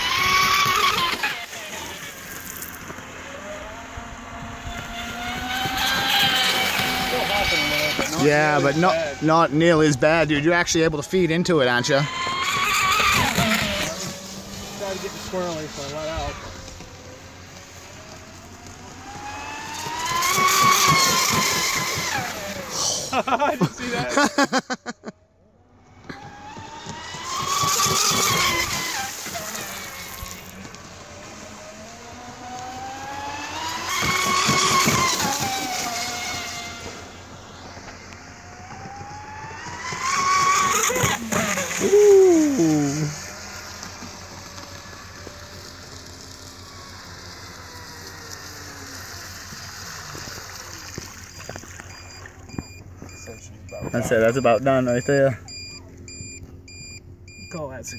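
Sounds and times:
speedboat motor whining: 0:00.0 - 0:57.9.

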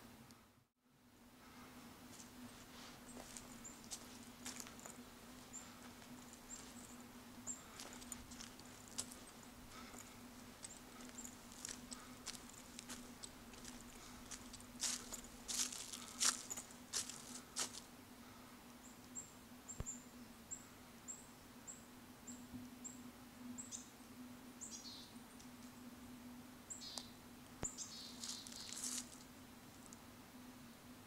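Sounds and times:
high trilling bird calls: 0:26.7 - 0:28.9.

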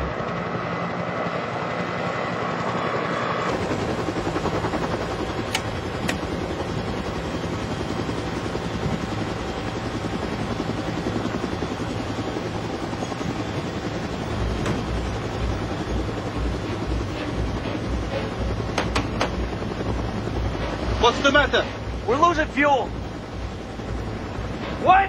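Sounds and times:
helicopter rotor and engine: 0:00.0 - 0:25.0
sharp clicks: 0:05.5 - 0:06.3.

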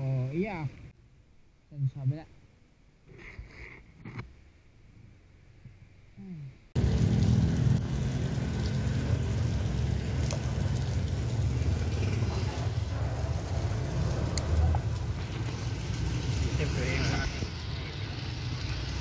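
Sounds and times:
traffic on a wet road: 0:06.8 - 0:19.0.

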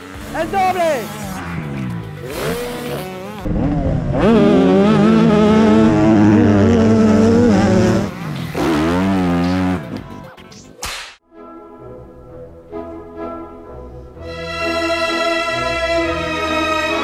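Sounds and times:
motorbike engines revving: 0:00.0 - 0:10.3.

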